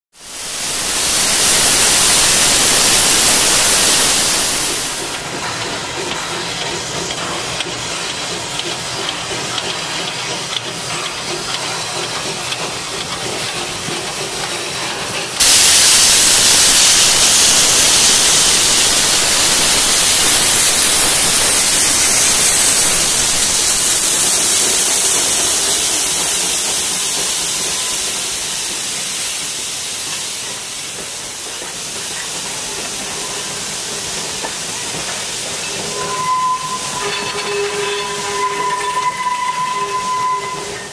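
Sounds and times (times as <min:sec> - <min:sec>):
high steady whine: 0:00.2 - 0:05.3, 0:15.4 - 0:31.8
steam locomotives hissing: 0:00.2 - 0:40.9.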